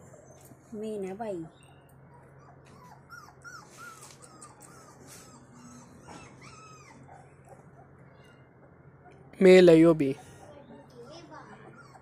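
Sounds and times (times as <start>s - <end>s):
puppy whimpering: 1.6s - 9.2s, 10.1s - 12.0s.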